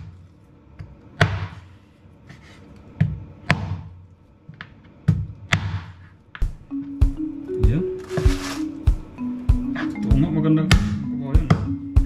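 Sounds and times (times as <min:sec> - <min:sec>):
cleaver chopping bony meat: 0:01.2 - 0:01.6, 0:03.4 - 0:03.9, 0:05.5 - 0:06.0.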